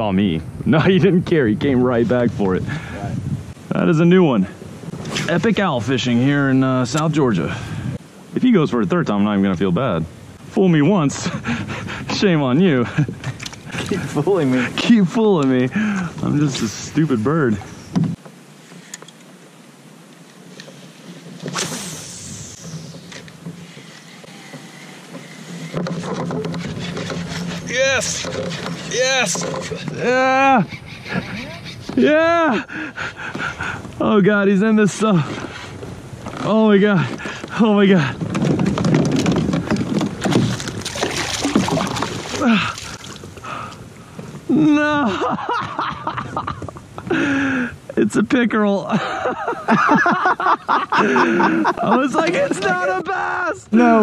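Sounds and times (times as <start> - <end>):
fishing line swish: 21.4 - 23.2
fish thrashing and splashing: 39.1 - 43.3.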